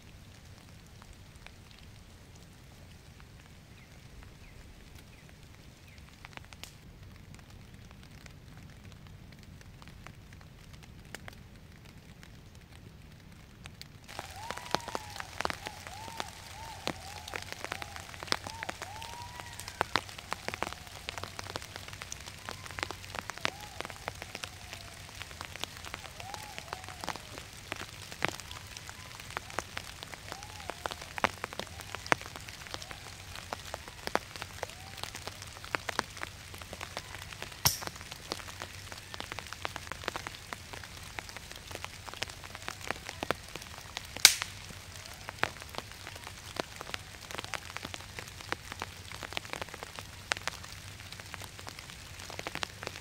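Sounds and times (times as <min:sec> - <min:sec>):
rain pattering on a tarp: 0:00.0 - 0:53.0
stick knocking into campfire: 0:37.7 - 0:38.0.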